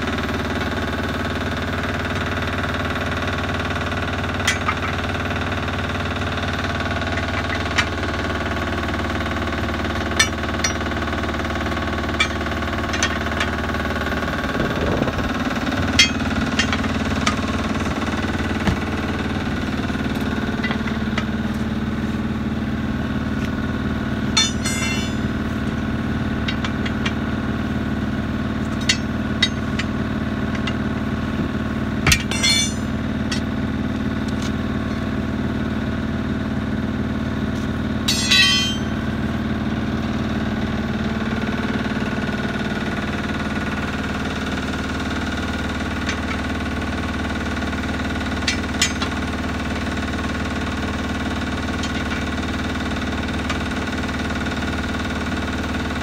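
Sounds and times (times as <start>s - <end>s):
engine drone: 0.0s - 56.0s
metal clanks on wheel: 4.2s - 5.6s, 7.0s - 8.3s, 9.6s - 21.7s, 24.3s - 27.4s, 28.6s - 33.6s, 37.6s - 39.1s, 44.3s - 54.0s.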